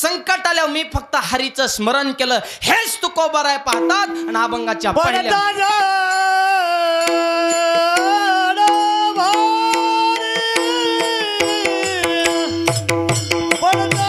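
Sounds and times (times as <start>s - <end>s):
sharp cymbal clicks: 3.7s - 6.2s, 6.9s - 13.7s
sliding held melody: 3.7s - 14.0s.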